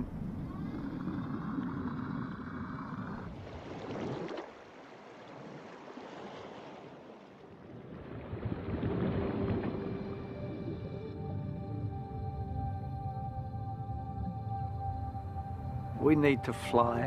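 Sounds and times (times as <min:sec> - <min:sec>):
water rushing and churning: 0:00.0 - 0:12.0.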